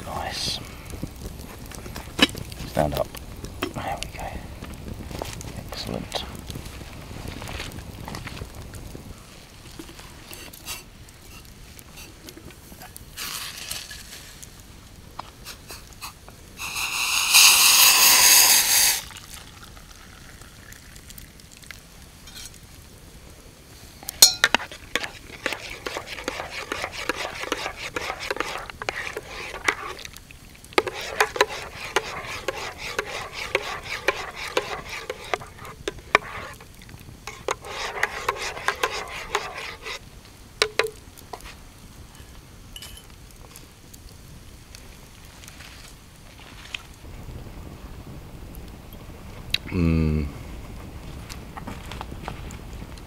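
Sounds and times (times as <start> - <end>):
rushing noise burst: 16.6 - 19.0
spoon scraping and clicking in mug: 24.2 - 30.1, 30.8 - 36.7, 37.3 - 40.0, 40.6 - 41.0.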